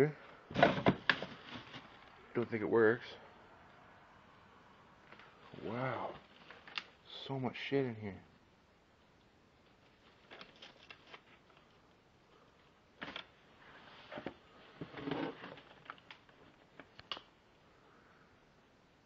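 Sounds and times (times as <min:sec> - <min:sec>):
clicks and rustling of clutter: 0:00.5 - 0:02.2, 0:09.6 - 0:11.8, 0:13.0 - 0:13.4, 0:14.1 - 0:17.3.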